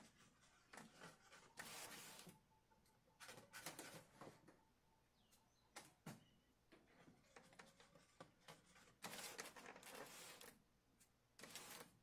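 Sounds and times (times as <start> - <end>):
brushing rustling sound: 0.0 - 2.4, 7.0 - 11.9.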